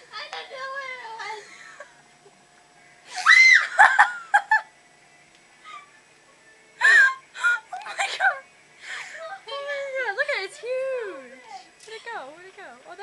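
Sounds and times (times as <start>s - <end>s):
woman screaming: 3.1s - 3.8s.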